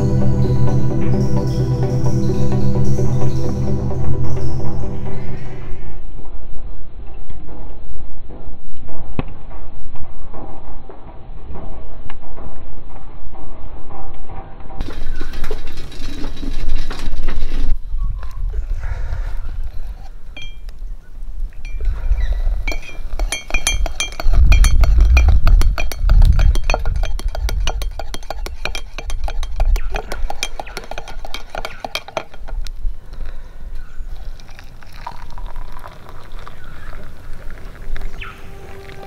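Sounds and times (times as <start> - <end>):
metal utensils clinking on cookware: 22.7 - 32.6.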